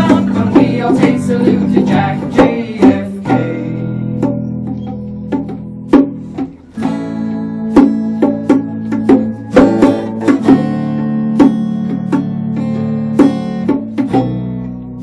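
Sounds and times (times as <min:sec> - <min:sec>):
bass guitar: 0:00.0 - 0:15.0
hand drum struck in rhythm: 0:00.0 - 0:15.0
strummed acoustic guitar: 0:00.0 - 0:15.0
keyboard instrument: 0:03.2 - 0:13.8.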